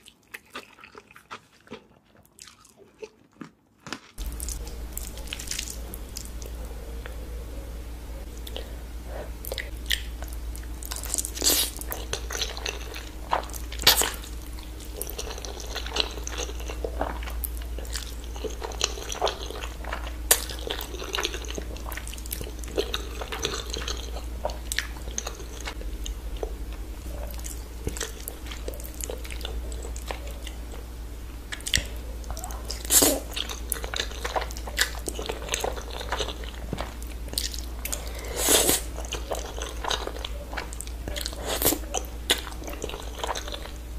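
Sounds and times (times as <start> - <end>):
chewing and wet mouth sounds: 0.0 - 43.9
crunching bites: 0.4 - 6.6
low hum: 4.2 - 43.9
noodles slurping: 32.6 - 43.7.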